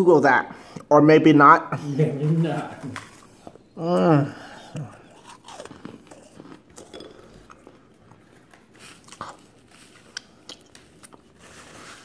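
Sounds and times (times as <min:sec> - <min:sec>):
chewing crunches: 0:04.6 - 0:11.4.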